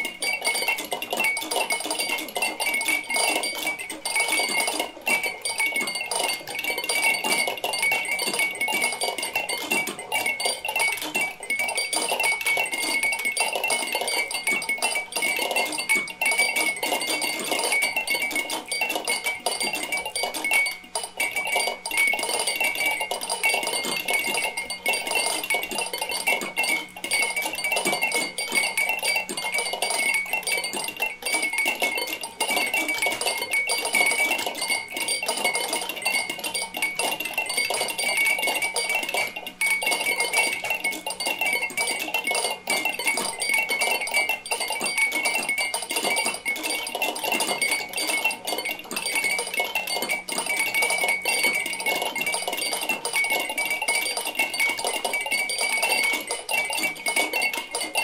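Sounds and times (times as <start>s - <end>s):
glass toys clicking and clinking: 0.0s - 58.0s.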